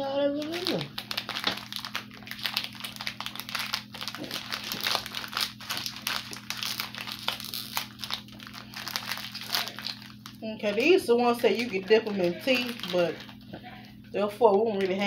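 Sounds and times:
wrapper crinkling: 0.0 - 15.0.

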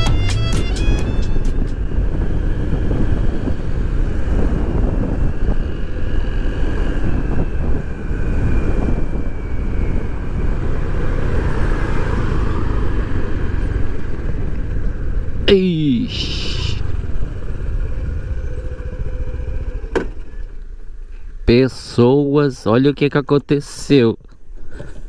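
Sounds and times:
wind rush on microphone: 0.8 - 15.5.

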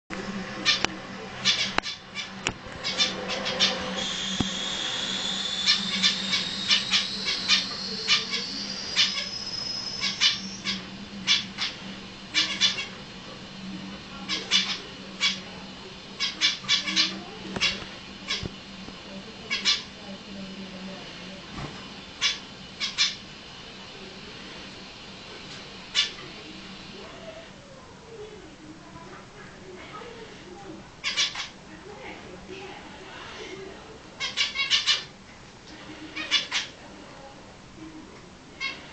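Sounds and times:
faint low hum: 0.1 - 38.9
finches chirping: 0.6 - 13.0, 14.2 - 18.5
thin rising whistle: 3.8 - 10.9.

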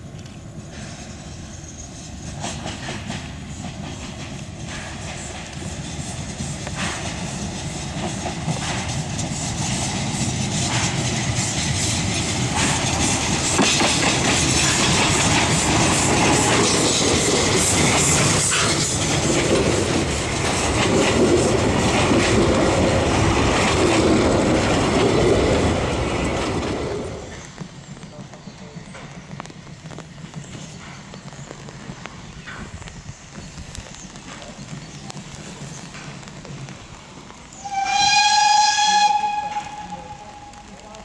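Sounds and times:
steam locomotive exhaust beats: 0.0 - 41.0
wheels clattering over rail joints: 6.3 - 39.9.

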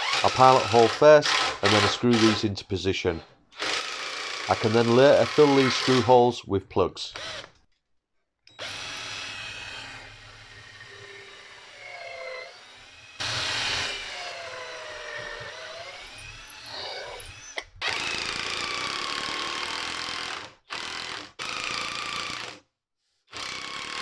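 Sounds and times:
cordless drill whining: 0.0 - 2.4, 3.5 - 6.1, 7.2 - 7.6, 8.5 - 22.6, 23.3 - 24.0
impact driver driving screws: 0.0 - 2.4, 3.6 - 6.1.

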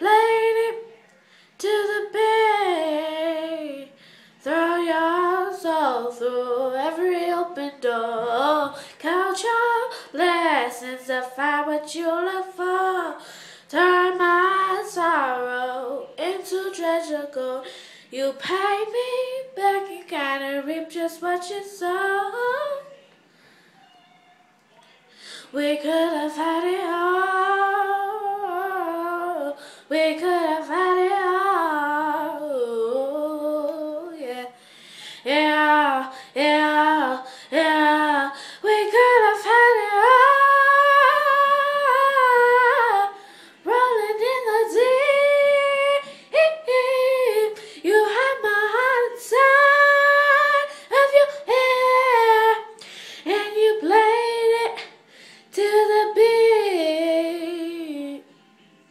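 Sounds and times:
girl singing a cappella: 0.0 - 23.0, 25.4 - 58.3.

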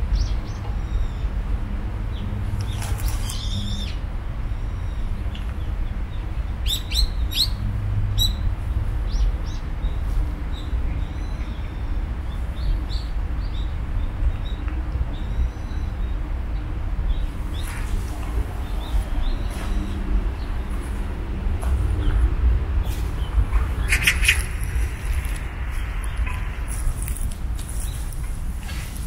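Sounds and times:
steady low rumble: 0.0 - 29.0
small birds chirping: 2.1 - 4.0, 22.9 - 29.0.

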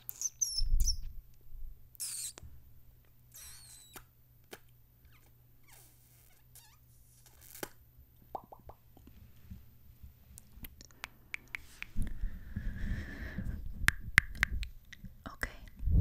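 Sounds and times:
squeaky smooch: 0.0 - 1.1, 2.0 - 2.4, 3.3 - 4.1, 5.0 - 7.8
wet lip smacks and mouth pops: 8.3 - 8.8.

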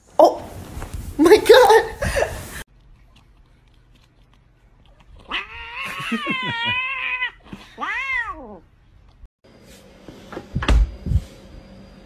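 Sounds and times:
cat meowing: 5.2 - 8.6
loud thump: 10.6 - 11.1.

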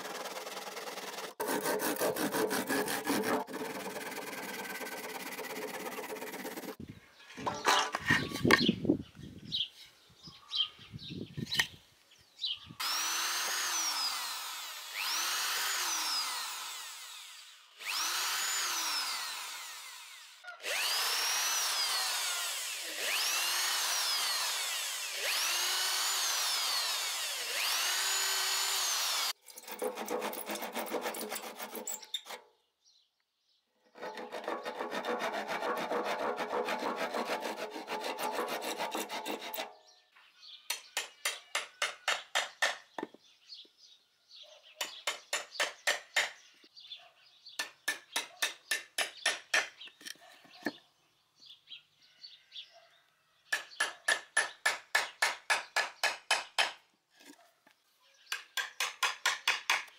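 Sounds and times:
electric drill boring into wood: 0.0 - 6.8, 12.8 - 32.4
handsaw cutting wood: 0.0 - 6.8, 12.8 - 32.5, 33.9 - 39.8
hammer striking chisel: 40.7 - 42.9, 44.8 - 46.4, 47.6 - 49.8, 53.5 - 56.8, 58.3 - 59.9.

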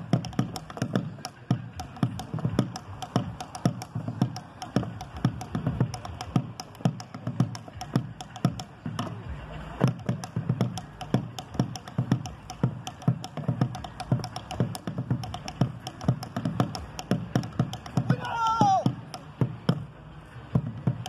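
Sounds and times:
wooden rim clicks: 0.0 - 9.2, 9.8 - 19.9
dancer's stamping footwork: 9.8 - 19.8.

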